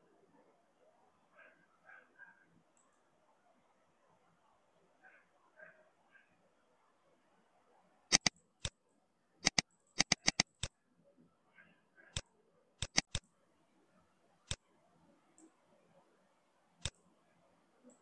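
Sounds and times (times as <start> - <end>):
mouse button clicking: 8.1 - 8.3, 9.4 - 10.7, 12.8 - 13.2.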